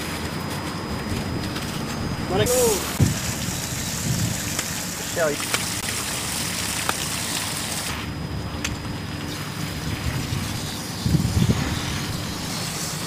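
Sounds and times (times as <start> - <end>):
low engine drone: 0.0 - 13.0
wind buffeting microphone: 0.9 - 4.6, 9.8 - 12.5.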